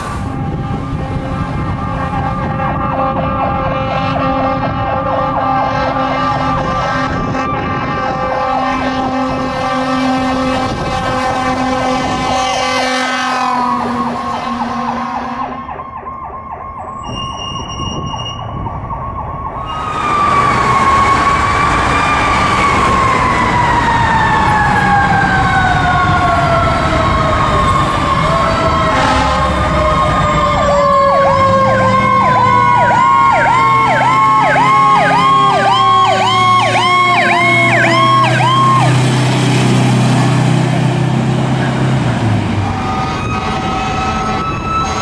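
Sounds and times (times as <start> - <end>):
fire engine siren: 0.0 - 45.0
short low horn blasts: 0.2 - 15.6, 28.8 - 30.6, 42.1 - 45.0.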